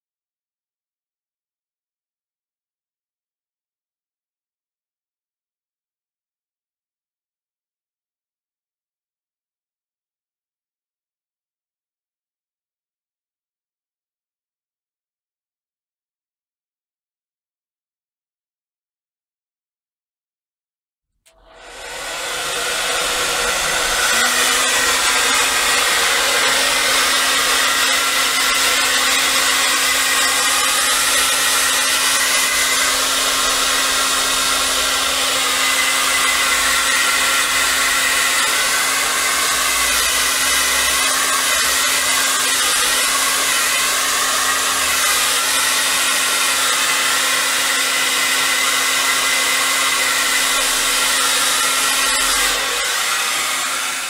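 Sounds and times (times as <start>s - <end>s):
hair dryer running: 21.3s - 54.0s.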